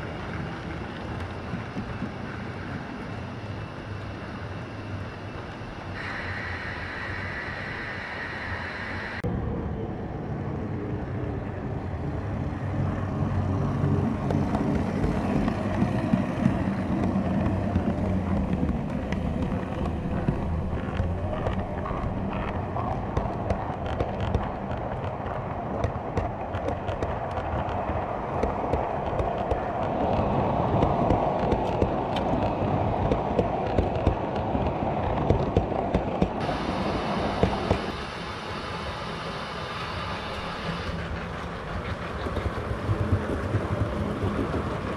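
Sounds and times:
model train wheels rumbling: 12.9s - 44.9s
clicks over rail joints: 14.1s - 36.5s.

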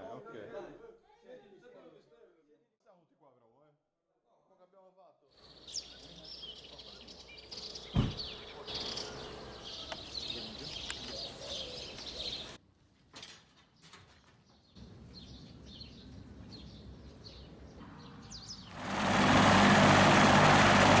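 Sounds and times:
birds chirping faintly: 5.4s - 12.6s
helicopter engine and rotor: 18.7s - 21.0s.

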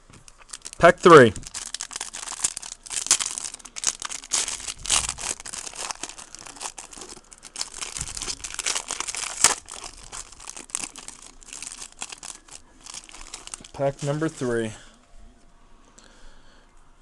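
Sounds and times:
foil wrapper tearing and crinkling: 0.3s - 14.6s.

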